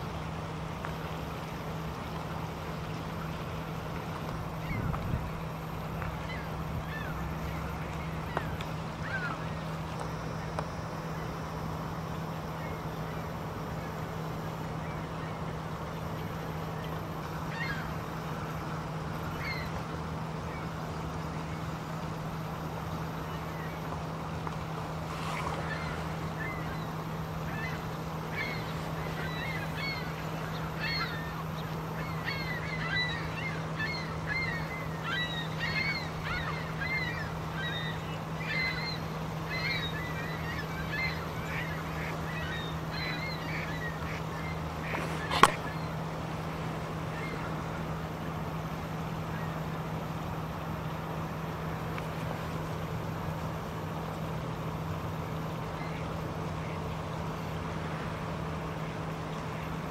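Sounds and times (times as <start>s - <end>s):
steady low hum: 0.0s - 59.9s
geese honking: 25.0s - 48.4s.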